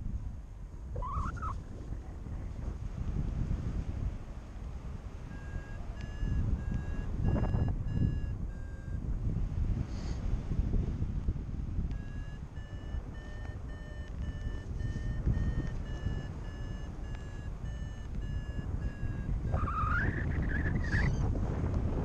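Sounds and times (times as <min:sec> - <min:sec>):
wind rushing on microphone: 0:00.0 - 0:22.0
variometer beeping short high tones: 0:05.3 - 0:09.0, 0:11.9 - 0:21.3.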